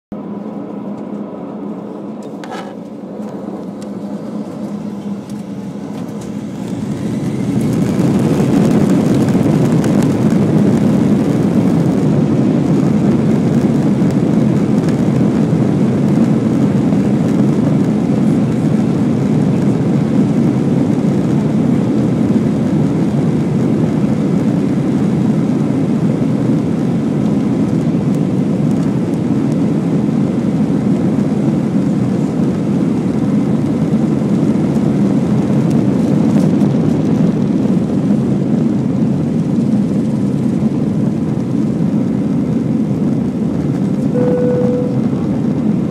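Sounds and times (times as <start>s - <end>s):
faint rising engine whine: 0.1s - 13.1s, 42.8s - 45.9s
jet engines roaring: 0.1s - 45.9s.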